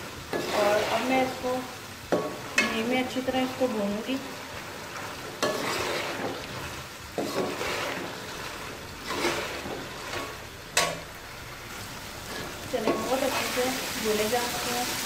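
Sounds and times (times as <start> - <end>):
chickpeas sizzling in ghee: 0.0 - 15.0
metal ladle stirring: 4.2 - 13.7.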